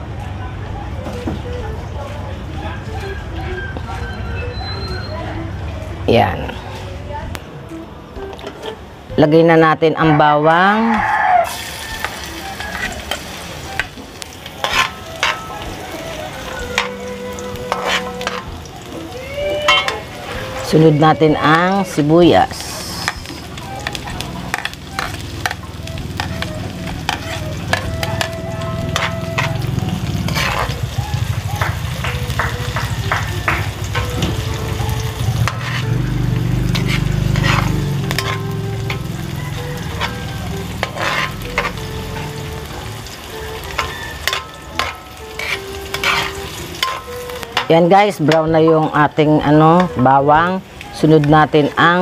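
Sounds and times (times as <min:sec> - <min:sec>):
garlic sizzling in hot oil: 0:11.4 - 0:52.0
metal ladle scraping a wok: 0:11.5 - 0:19.0, 0:19.6 - 0:31.0, 0:35.1 - 0:39.2, 0:39.8 - 0:42.3, 0:43.0 - 0:48.9.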